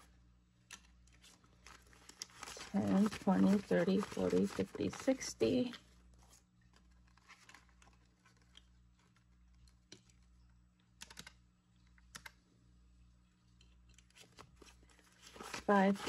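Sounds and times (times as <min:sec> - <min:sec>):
calculator keys clicking: 0:11.0 - 0:11.4.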